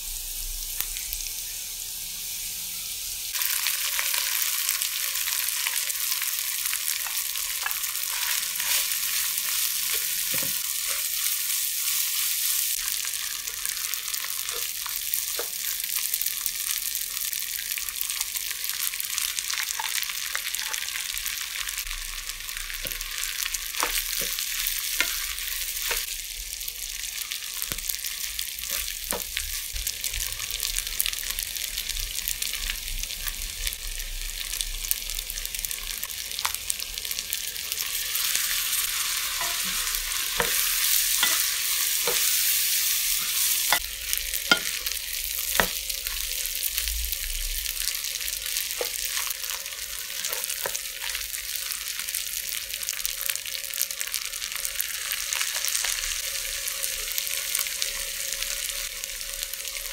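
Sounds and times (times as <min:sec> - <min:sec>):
food sizzling in a wok: 0:00.0 - 0:59.9.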